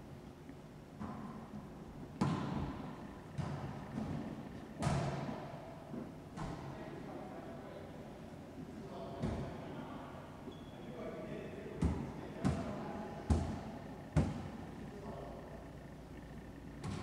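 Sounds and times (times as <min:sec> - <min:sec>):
ball smacking court walls: 0:02.2 - 0:06.7, 0:11.8 - 0:14.6, 0:16.8 - 0:17.0.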